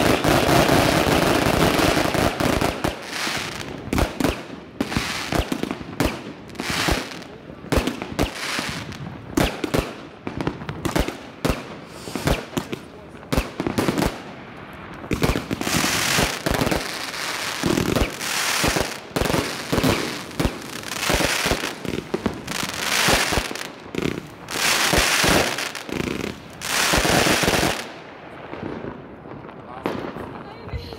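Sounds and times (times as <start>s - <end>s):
firecracker bangs: 0.0s - 6.2s
fireworks bursts: 0.0s - 30.9s.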